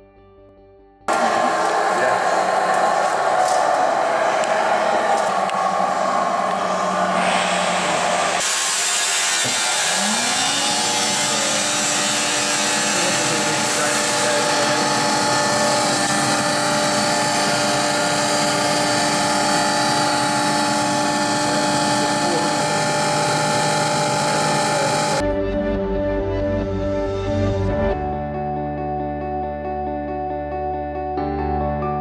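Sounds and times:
bench grinder motor whine and hum: 0:01.1 - 0:25.2.

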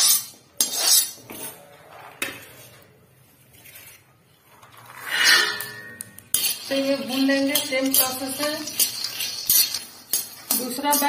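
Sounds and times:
metal scraping iron pan: 0:04.6 - 0:11.0
iron pan ringing: 0:05.0 - 0:08.4.

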